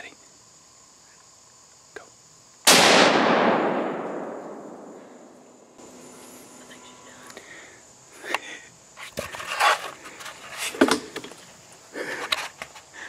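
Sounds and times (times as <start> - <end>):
gunshot with echo: 2.7 - 5.3.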